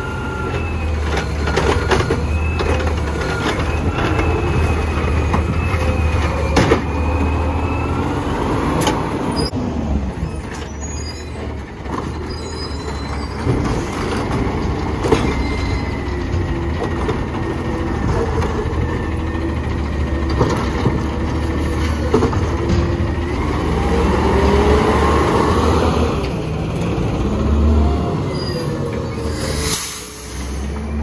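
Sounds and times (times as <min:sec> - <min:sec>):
garbage truck diesel engine: 0:00.0 - 0:31.0
trash cart clunks and bangs: 0:01.1 - 0:07.4, 0:13.3 - 0:18.8, 0:21.9 - 0:23.2.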